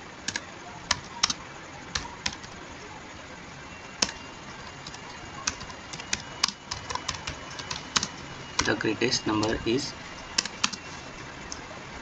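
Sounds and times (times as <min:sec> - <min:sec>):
computer keyboard keys clicking: 0:00.3 - 0:02.6, 0:04.0 - 0:08.8, 0:09.4 - 0:09.6, 0:10.2 - 0:11.7.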